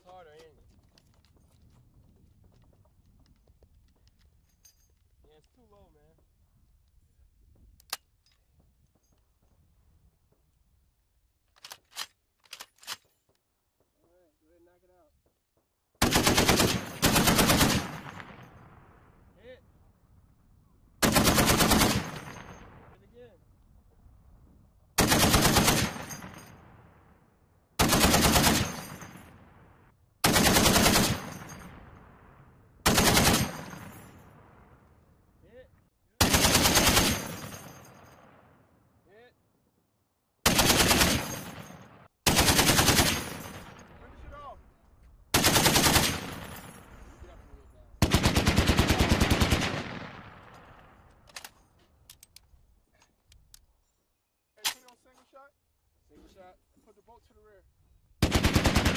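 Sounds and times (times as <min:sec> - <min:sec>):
gunfire echo: 0:16.0 - 0:19.2, 0:48.0 - 0:51.1
machine gun burst: 0:58.2 - 0:58.9.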